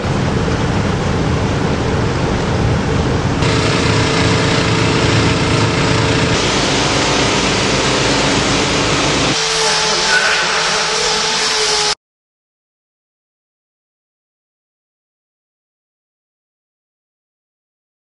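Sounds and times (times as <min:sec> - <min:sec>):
pump motors humming: 0:03.4 - 0:12.0.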